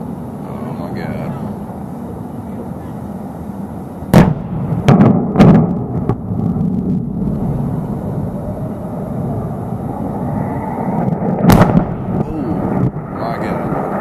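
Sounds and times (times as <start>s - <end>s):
demolition blast: 4.1s - 14.0s
low rumble: 4.1s - 14.0s.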